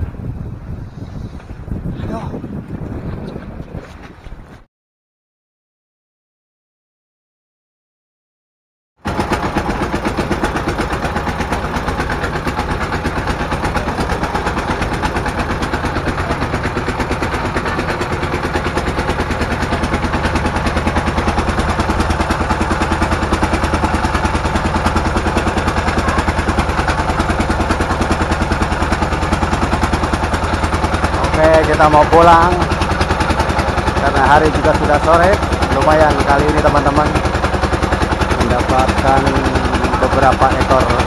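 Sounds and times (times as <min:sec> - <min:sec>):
boat engine knocking: 0:09.0 - 0:41.0.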